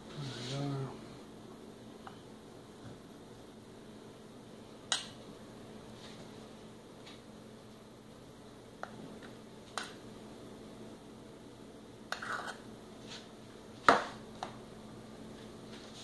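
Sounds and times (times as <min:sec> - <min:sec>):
cup scraping pot: 0:12.1 - 0:12.6.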